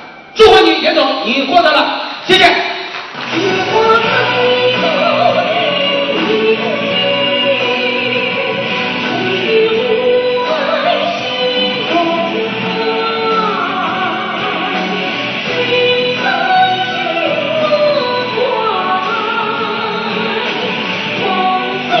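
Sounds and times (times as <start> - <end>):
instrumental backing music: 2.8 - 22.0.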